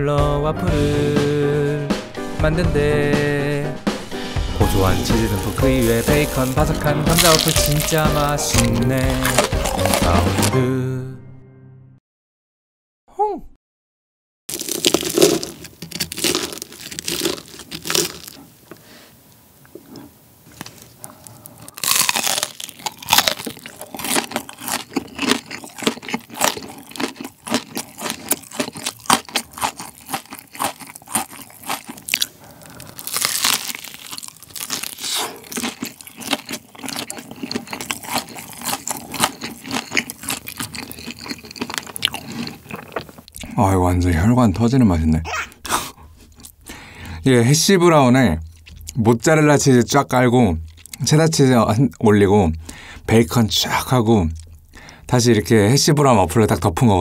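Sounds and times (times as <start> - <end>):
crunching and chewing food: 4.6 - 10.6, 14.5 - 18.8, 19.6 - 45.0, 46.0 - 55.2.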